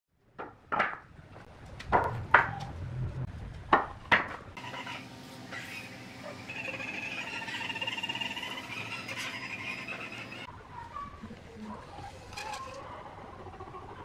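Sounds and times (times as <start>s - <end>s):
wooden boards knocking: 0.3s - 1.1s, 3.7s - 4.4s.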